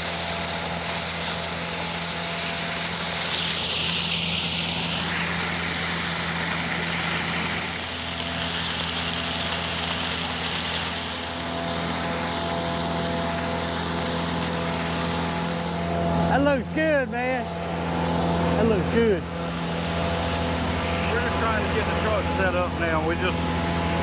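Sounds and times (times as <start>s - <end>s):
air and mulch rushing through hose: 0.0s - 24.0s
diesel engine and blower drone: 0.0s - 24.0s.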